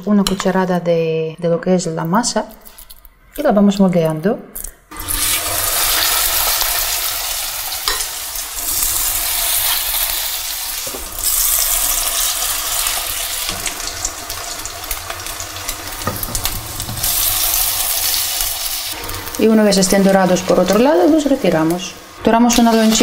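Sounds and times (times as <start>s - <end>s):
patties sizzling in hot oil: 4.9s - 23.0s.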